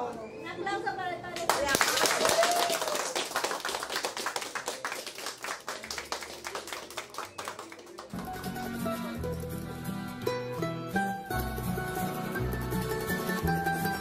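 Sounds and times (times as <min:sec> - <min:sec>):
crowd applauding: 0:01.4 - 0:09.7
music with a bass line: 0:08.2 - 0:14.0.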